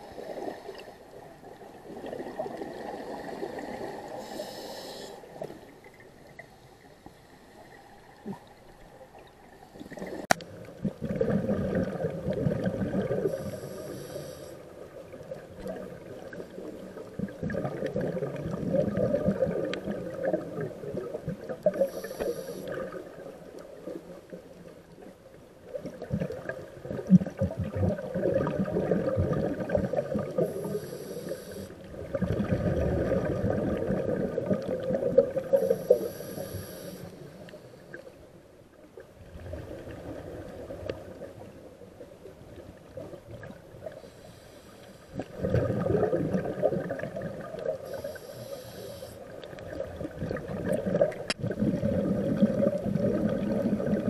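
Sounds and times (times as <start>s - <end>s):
regulator inhalation hiss: 4.1s - 5.4s, 13.3s - 14.6s, 21.8s - 22.8s, 30.4s - 31.8s, 35.6s - 37.7s, 44.0s - 45.2s, 47.9s - 49.3s
gurgling exhaled bubbles: 9.8s - 14.0s, 14.7s - 24.0s, 25.7s - 36.5s, 45.1s - 48.4s, 49.3s - 54.0s.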